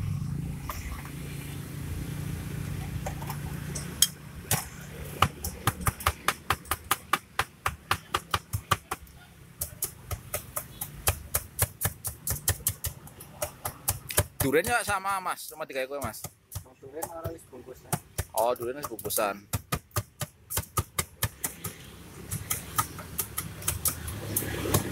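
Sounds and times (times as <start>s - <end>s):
low hum: 0.0s - 4.9s.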